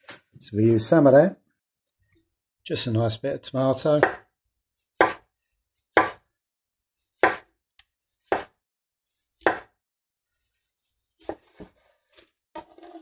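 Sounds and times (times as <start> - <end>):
knife slicing tomato: 5.0 - 5.3, 6.0 - 6.2, 7.2 - 7.5, 8.2 - 8.6, 9.4 - 9.7.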